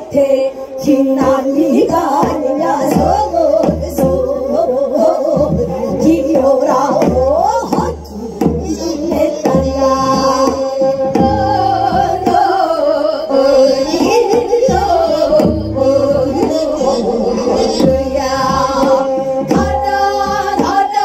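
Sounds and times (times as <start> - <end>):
women singing folk song: 0.0 - 21.0
steady drum beat: 5.0 - 21.0.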